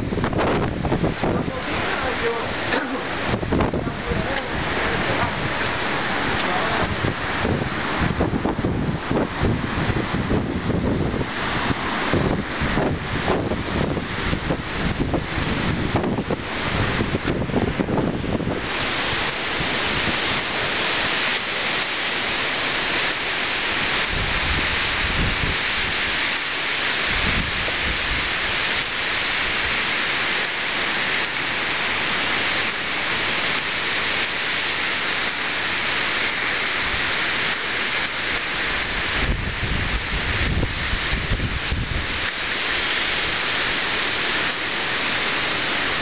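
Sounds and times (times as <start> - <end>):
wind gusts buffeting microphone: 0.0 - 21.5, 23.8 - 26.4, 27.0 - 29.8, 38.6 - 43.8
heavy rain on wet ground: 0.0 - 46.0.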